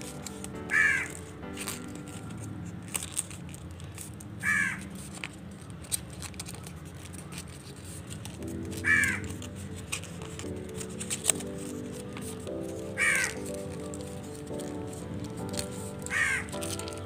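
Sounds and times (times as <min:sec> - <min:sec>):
paper being folded: 0:00.0 - 0:17.0
bird calling: 0:08.8 - 0:09.2, 0:13.0 - 0:13.4, 0:16.1 - 0:16.5.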